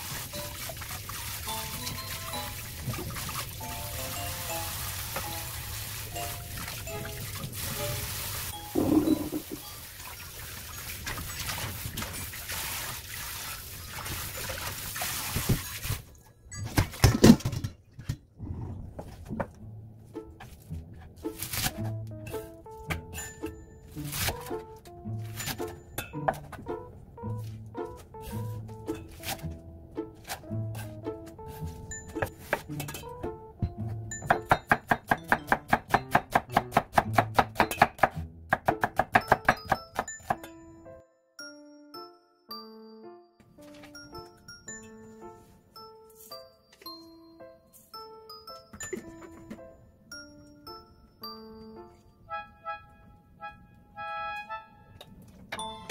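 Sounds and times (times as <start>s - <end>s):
background music: 0.0s - 10.0s, 19.0s - 55.9s
metal bowl clattering: 8.8s - 9.6s, 16.6s - 18.2s
knife chopping on wooden board: 34.3s - 40.1s.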